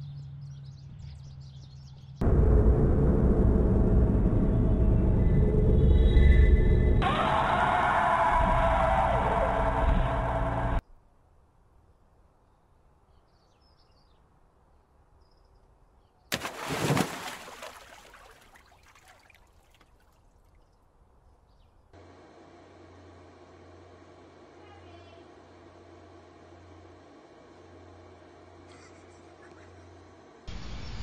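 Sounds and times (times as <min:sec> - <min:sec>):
body splashing into pond: 0:16.3 - 0:20.6
water sloshing: 0:16.3 - 0:20.7.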